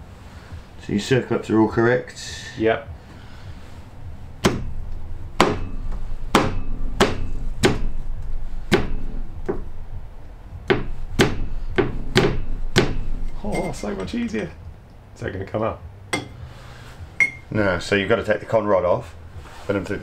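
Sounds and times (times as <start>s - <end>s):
hand slapping metal with ringing knocks: 4.4s - 4.8s, 5.4s - 8.0s, 10.7s - 14.2s, 16.1s - 16.4s, 17.2s - 17.5s.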